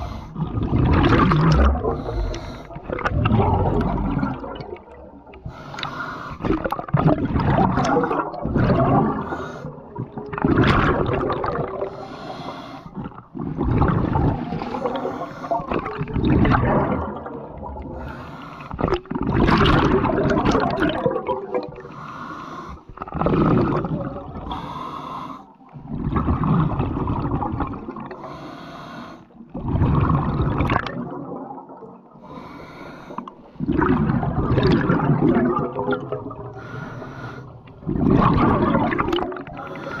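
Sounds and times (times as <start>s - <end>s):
exhaled bubbles gurgling: 0.0s - 28.5s, 29.3s - 32.6s, 33.2s - 40.0s
regulator breath hiss: 12.0s - 12.9s.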